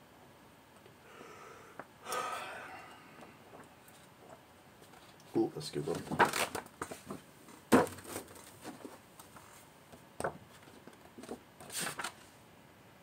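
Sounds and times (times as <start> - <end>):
book pages flipping: 10.5 - 12.2.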